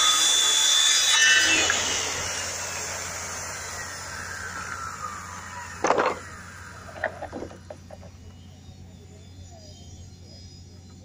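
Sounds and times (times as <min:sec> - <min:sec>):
circular saw blade whining down: 0:00.0 - 0:09.8
wooden clatter: 0:05.8 - 0:08.2.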